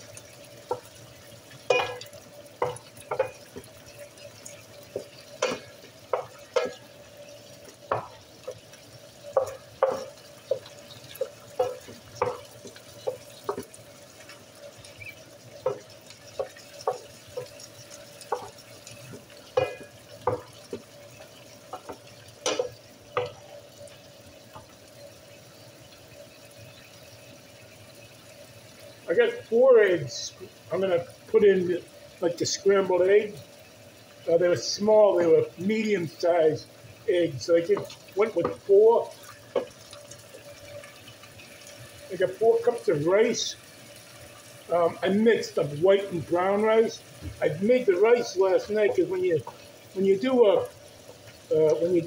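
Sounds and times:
chicken sizzling in oil: 0:00.0 - 0:52.0
wooden spatula scraping a skillet: 0:01.7 - 0:14.9.

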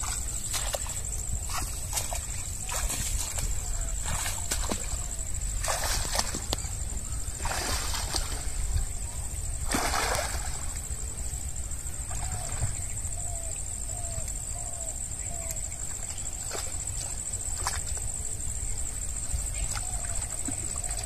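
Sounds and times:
water splashing as person wades: 0:00.0 - 0:08.7, 0:09.5 - 0:10.9.

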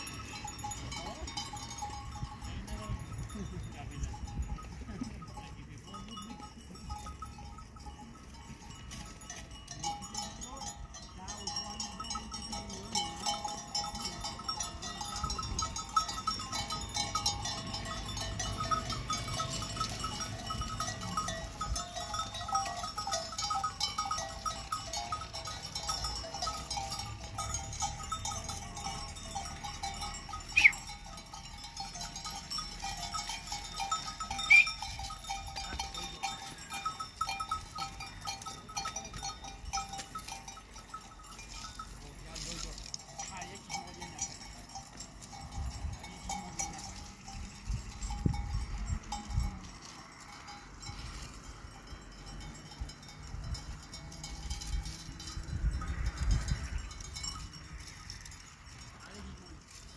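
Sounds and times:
livestock bells jingling: 0:00.0 - 0:59.9
loud high cries: 0:30.5 - 0:30.9, 0:34.4 - 0:34.8.

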